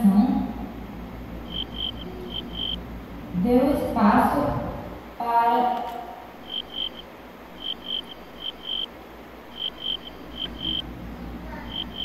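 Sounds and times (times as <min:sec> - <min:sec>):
low hum: 0:00.5 - 0:04.0
cricket chirping: 0:01.4 - 0:02.8, 0:06.3 - 0:08.9, 0:09.5 - 0:10.9, 0:11.7 - 0:12.0.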